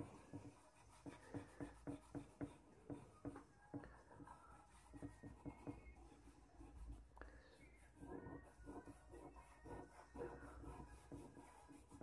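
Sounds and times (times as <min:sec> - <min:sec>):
charcoal scratching on paper: 0:00.0 - 0:12.0.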